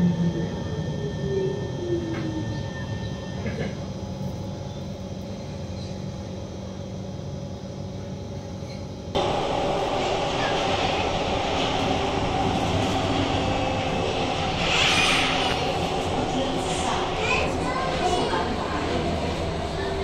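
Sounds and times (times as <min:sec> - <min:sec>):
train running rumble: 0:09.1 - 0:20.0
train traction motor whine: 0:09.2 - 0:20.0.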